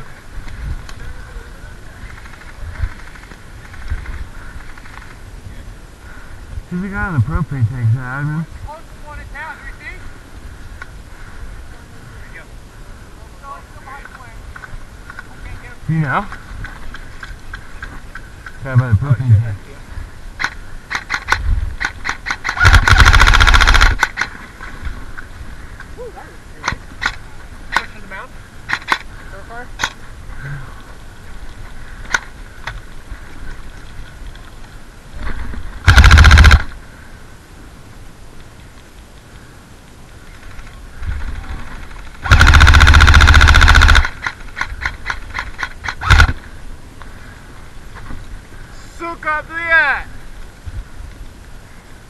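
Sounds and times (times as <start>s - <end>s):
airsoft rifle shots: 20.4s - 24.4s, 35.8s - 36.8s, 42.2s - 46.4s
full-auto burst of shots: 20.9s - 24.3s, 35.8s - 36.8s, 42.2s - 46.4s
quiet clicks: 26.6s - 27.9s.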